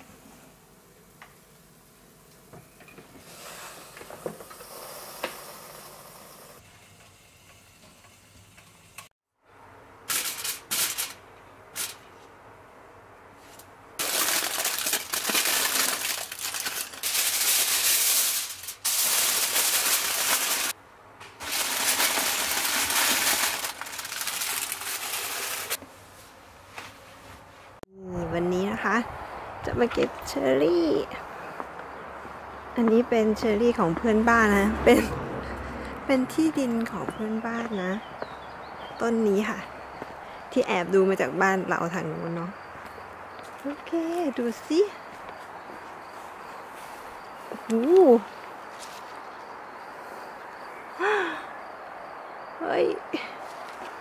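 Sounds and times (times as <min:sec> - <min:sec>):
aluminium foil crinkling: 0:10.1 - 0:12.0, 0:14.0 - 0:20.8, 0:21.4 - 0:25.8.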